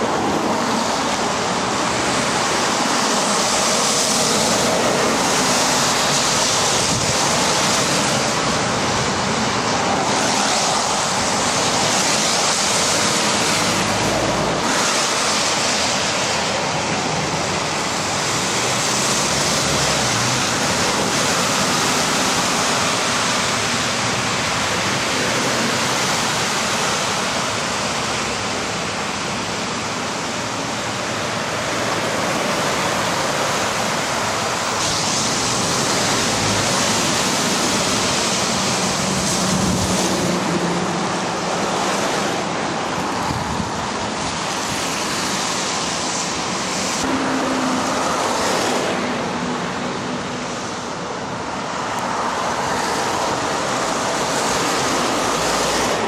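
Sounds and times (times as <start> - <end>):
lorry engines: 0.0 - 56.0
tyres hissing on wet road: 0.0 - 56.0.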